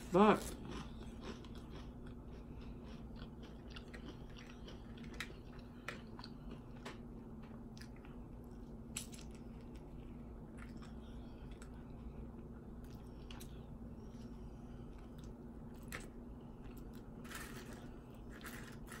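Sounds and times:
person biting and chewing food: 0:00.5 - 0:07.1.

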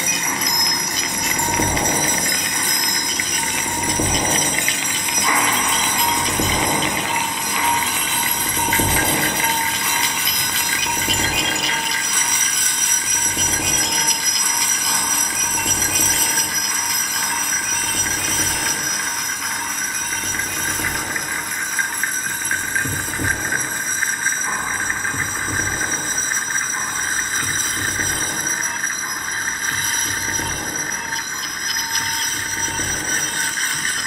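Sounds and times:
metallic shimmering gong drone: 0:00.0 - 0:22.8.

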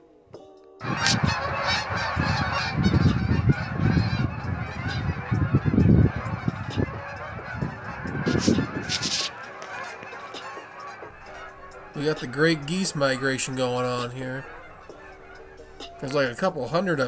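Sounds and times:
low rumble: 0:00.8 - 0:08.9
geese honking: 0:00.8 - 0:17.0.

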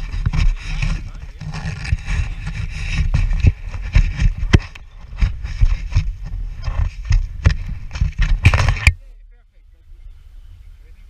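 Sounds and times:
footsteps on grass: 0:00.0 - 0:08.8
wind buffeting microphone: 0:00.0 - 0:11.0.

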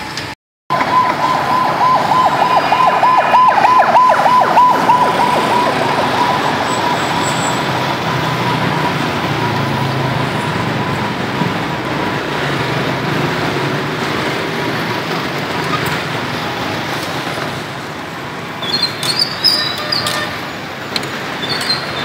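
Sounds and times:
siren-like warbling tone: 0:00.7 - 0:11.2.

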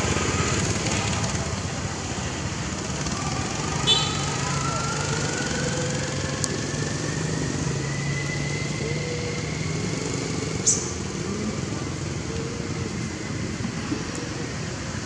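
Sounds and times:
small motorcycle engine whining: 0:00.0 - 0:15.0.

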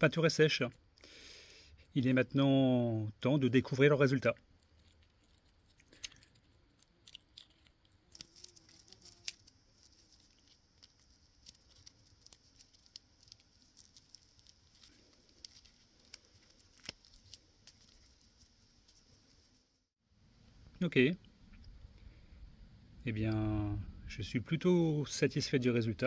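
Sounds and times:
masking tape peeling: 0:04.6 - 0:19.6.

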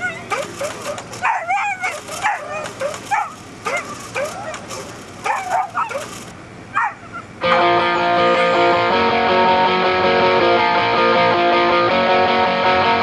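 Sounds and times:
dog yelping and whining: 0:00.0 - 0:07.7.

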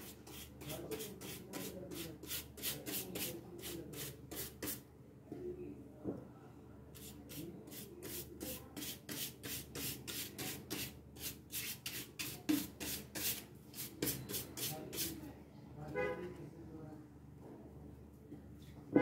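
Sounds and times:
rubbing on thin wood: 0:00.0 - 0:04.8, 0:07.0 - 0:15.2.

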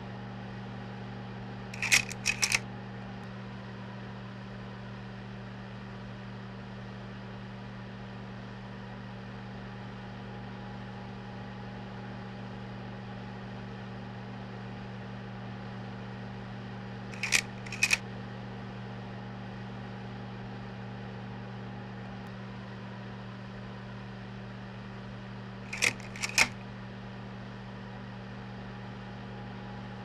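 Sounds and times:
slide change click-clack: 0:01.8 - 0:02.6, 0:17.2 - 0:18.0, 0:25.7 - 0:26.6
slide projector motor hum: 0:01.8 - 0:02.6, 0:17.2 - 0:18.0, 0:25.7 - 0:26.7.

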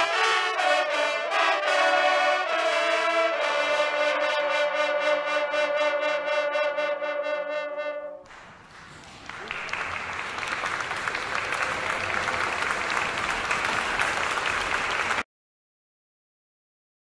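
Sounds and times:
hunting horns chord: 0:00.0 - 0:08.3
applause: 0:08.2 - 0:15.3.

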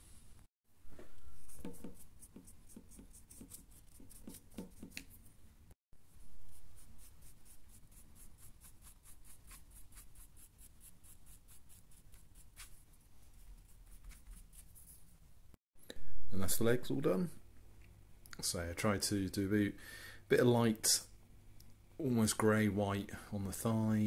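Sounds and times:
stiff paintbrush scratching: 0:01.3 - 0:05.3, 0:06.2 - 0:15.2.

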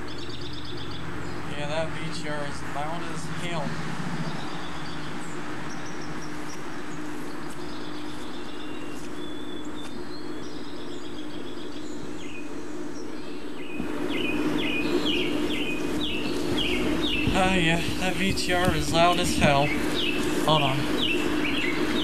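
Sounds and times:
birds chirping: 0:00.0 - 0:22.0
camcorder tape transport hum: 0:13.6 - 0:22.0.

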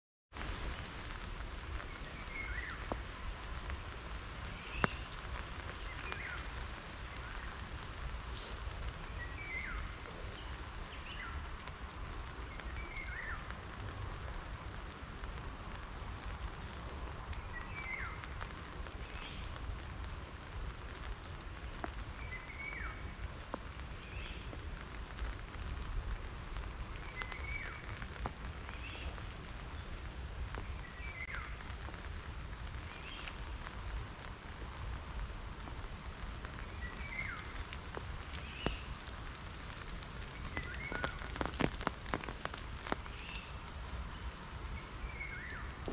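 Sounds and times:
rain pattering on leaves: 0:00.3 - 0:45.9
single raindrop hit: 0:04.6 - 0:07.6.

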